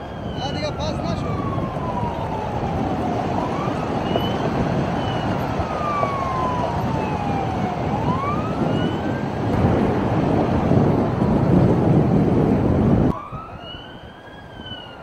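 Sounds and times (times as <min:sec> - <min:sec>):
traffic rumble: 0:00.0 - 0:15.0
vehicle siren wailing: 0:00.0 - 0:15.0.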